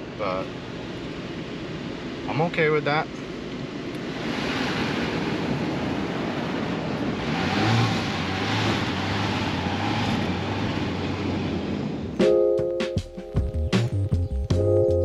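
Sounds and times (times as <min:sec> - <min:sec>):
car engine and tyres: 0:00.0 - 0:12.6
wind: 0:00.0 - 0:15.0
background music with drums: 0:12.2 - 0:15.0.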